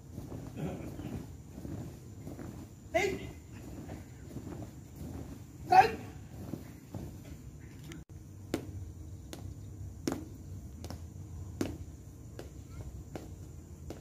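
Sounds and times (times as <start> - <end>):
footsteps walking: 0.0 - 8.7.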